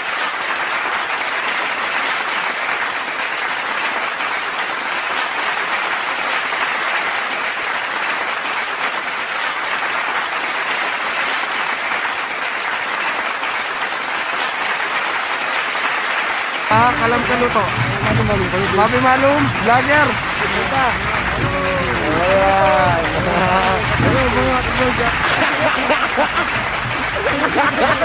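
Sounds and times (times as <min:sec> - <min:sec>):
crowd applause: 0:00.0 - 0:28.0.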